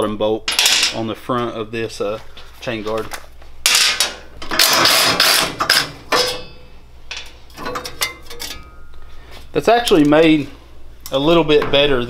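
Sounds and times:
metal chain guard scraping: 3.8 - 8.8.

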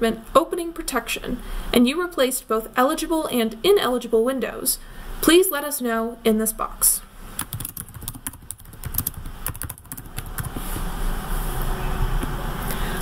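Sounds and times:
keyboard typing: 7.4 - 10.9.

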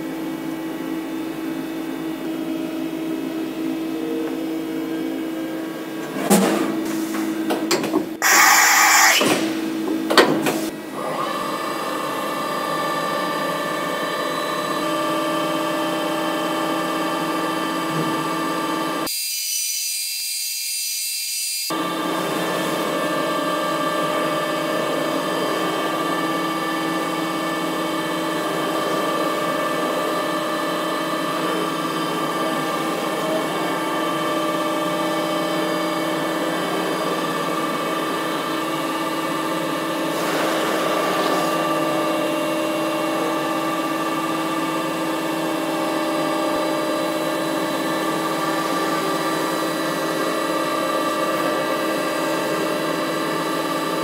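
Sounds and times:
milling machine spindle whine: 8.2 - 9.3, 10.9 - 19.6, 21.5 - 54.0
end mill shredding lettuce: 21.7 - 54.0.

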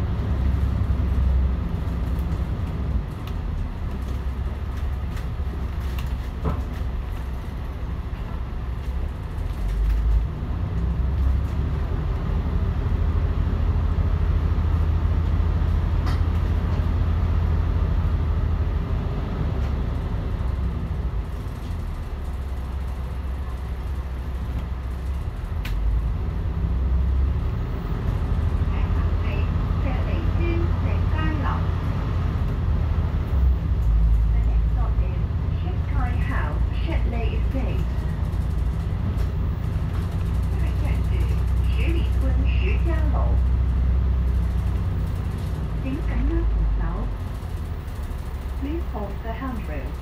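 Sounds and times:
bus diesel engine drone: 0.0 - 50.0
light rattles: 36.0 - 50.0.

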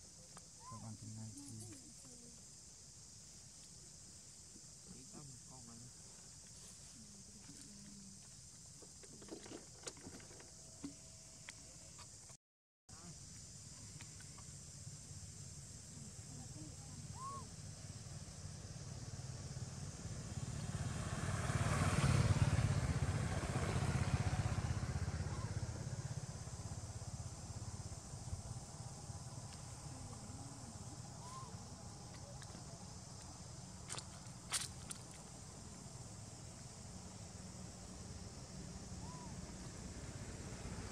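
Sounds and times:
vehicle passing on road: 18.4 - 40.9.

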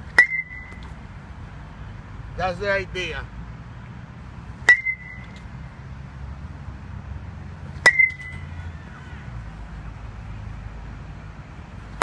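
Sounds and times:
metal bat hitting ball: 0.1 - 0.9, 4.6 - 5.5, 7.8 - 8.5.

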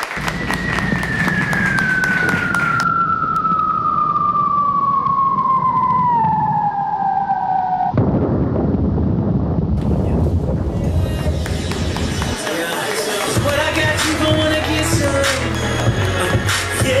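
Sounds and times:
dense noisy wash: 0.0 - 15.4
falling whistle tone: 0.2 - 8.0.

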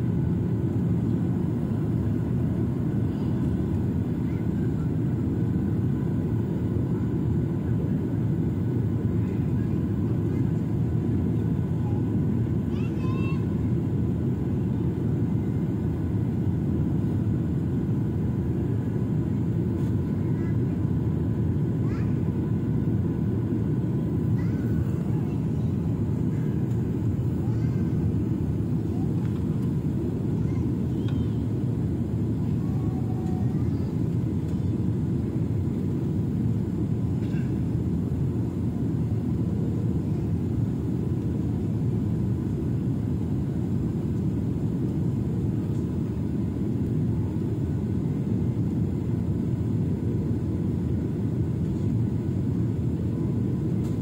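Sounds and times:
jet airliner cabin noise: 0.0 - 54.0
faint voices: 2.9 - 15.8, 23.8 - 36.0.

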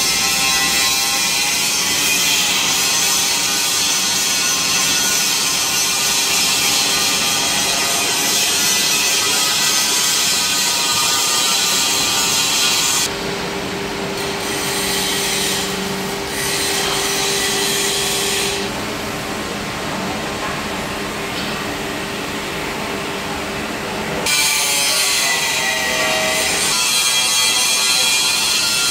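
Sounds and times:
drilling machine grinding: 0.0 - 13.1.

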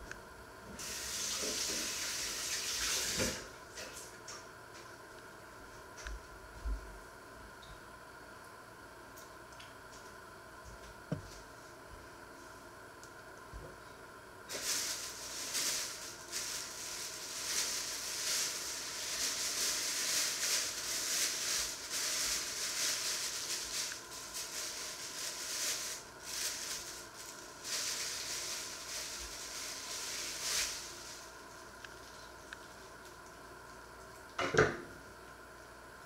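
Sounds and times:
plastic bag crinkling: 14.5 - 32.3.

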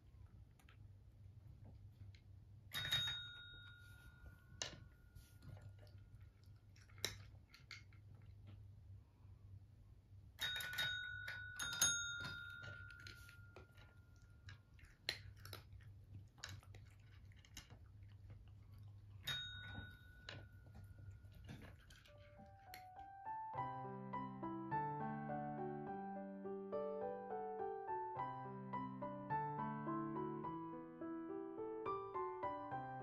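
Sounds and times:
desk bell ringing: 2.7 - 4.6, 10.4 - 13.6, 19.3 - 20.5
cats crunching food: 5.2 - 8.8, 12.4 - 23.2.

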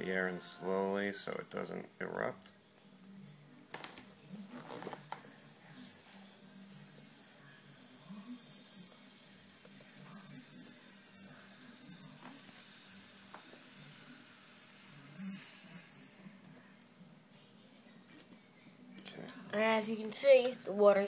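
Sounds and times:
air hissing into vacuum chamber: 8.0 - 16.2.

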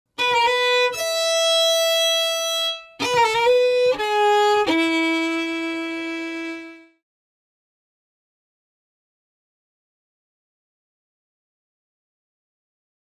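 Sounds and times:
solo melody of held notes: 0.2 - 7.0.

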